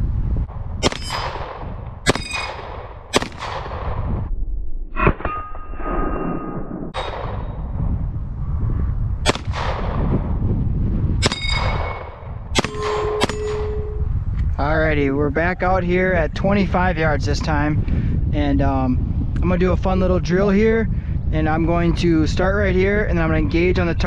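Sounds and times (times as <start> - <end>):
pistol shots: 0.8 - 4.0, 9.2 - 10.0, 11.2 - 14.0
steel targets ringing: 11.3 - 14.1.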